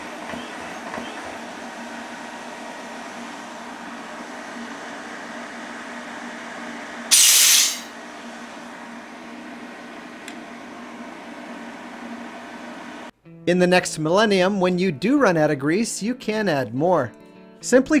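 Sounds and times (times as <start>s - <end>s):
air compressor humming: 0.0s - 13.1s
sharp burst of air hiss: 7.1s - 7.9s.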